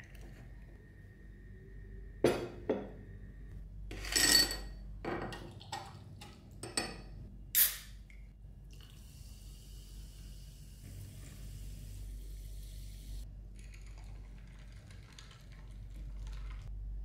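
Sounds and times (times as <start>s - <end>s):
dishes and utensils clinking: 3.9s - 5.5s.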